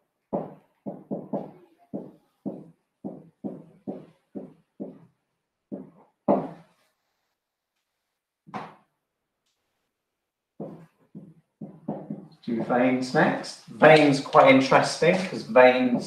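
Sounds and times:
marker tapping on whiteboard: 0.3s - 5.1s, 5.7s - 6.7s, 8.5s - 8.9s, 10.6s - 12.9s, 15.3s - 16.0s.

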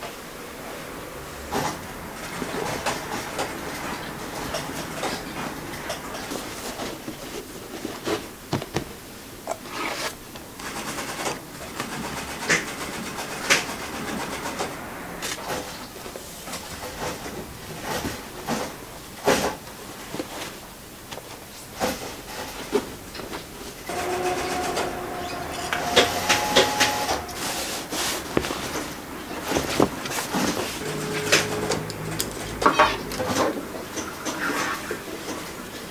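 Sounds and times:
fabric rustling: 26.9s - 30.9s.

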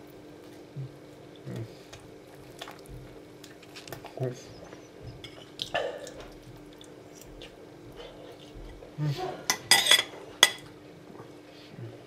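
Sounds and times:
cutlery clinking on a plate: 9.5s - 10.7s.

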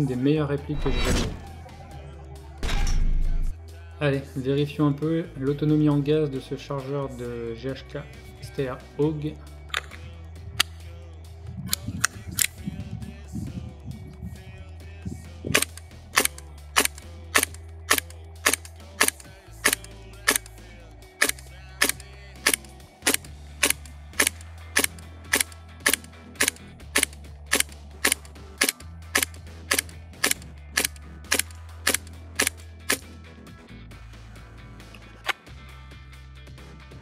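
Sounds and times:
background music low notes: 0.0s - 37.0s.

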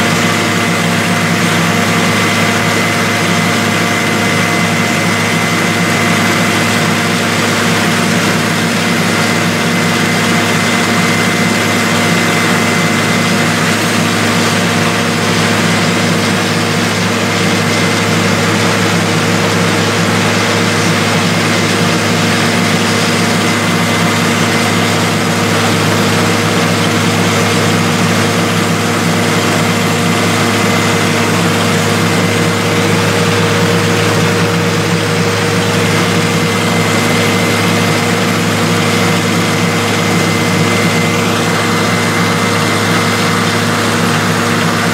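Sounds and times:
drilling rig engine drone: 0.0s - 44.9s.

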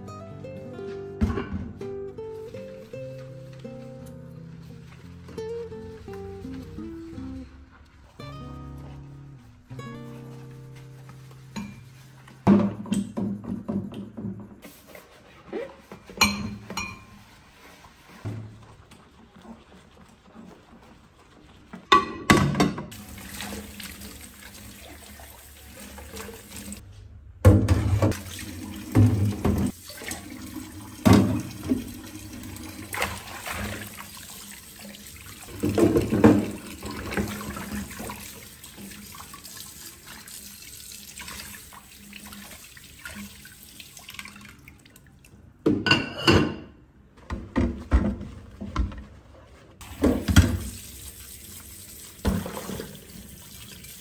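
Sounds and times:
water running from a tap: 22.9s - 26.8s, 28.1s - 45.1s, 49.8s - 54.0s.

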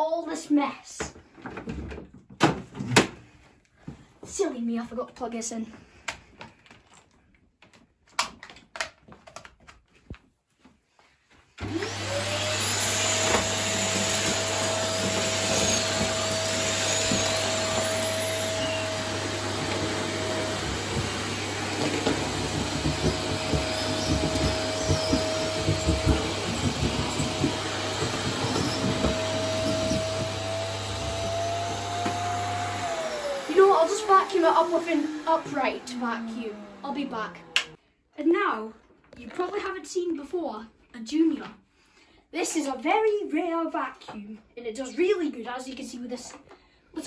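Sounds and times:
vacuum cleaner running: 11.6s - 37.8s.

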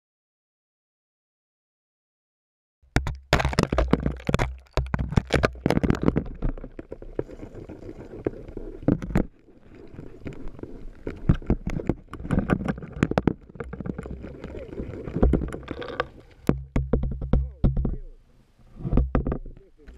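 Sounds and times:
spool clicks and knocks: 18.9s - 19.9s.

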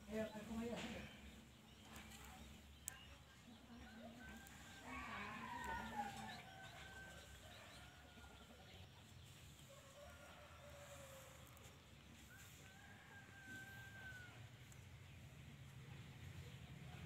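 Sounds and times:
rooster crowing: 4.0s - 8.6s, 12.4s - 14.5s.

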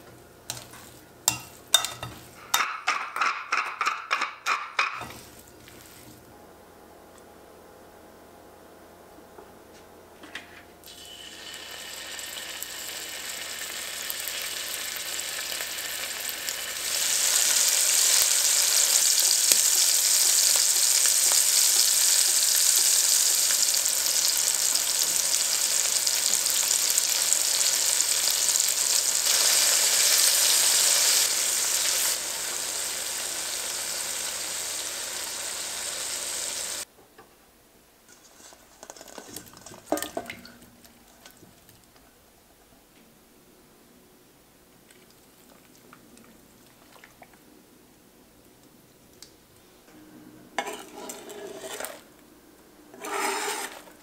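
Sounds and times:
beef searing in hot oil: 10.8s - 36.9s, 50.6s - 52.0s, 53.0s - 53.9s.

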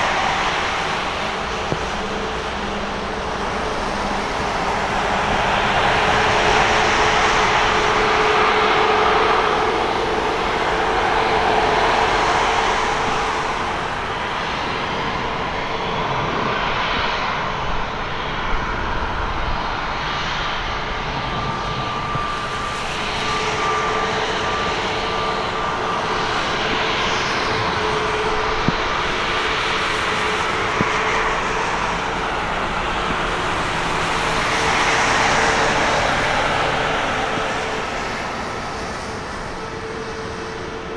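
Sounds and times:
jet engines rushing and whining: 0.0s - 40.9s.

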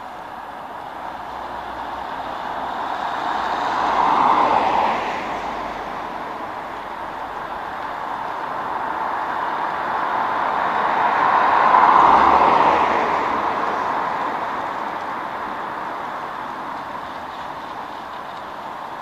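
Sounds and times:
traffic on wet road: 0.0s - 19.0s
vehicle passing close by: 1.1s - 17.6s.

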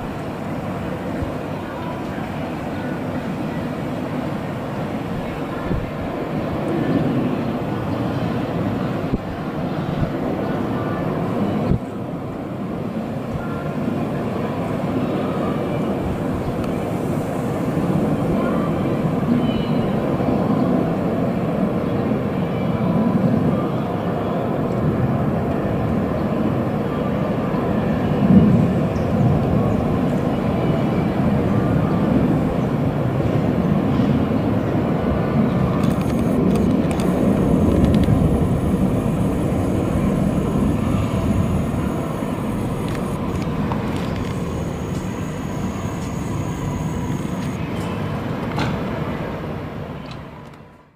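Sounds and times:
jet engine rumble: 35.8s - 47.6s.

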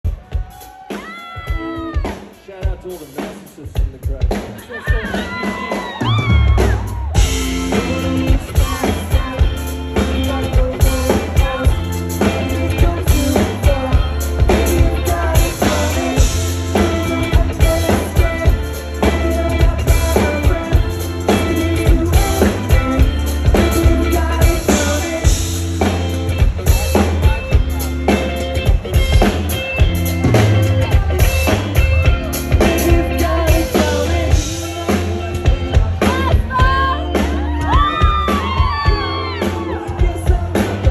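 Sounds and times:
drum kit beat: 0.0s - 40.9s
bass guitar: 3.8s - 40.9s
electric guitars: 5.0s - 40.9s.

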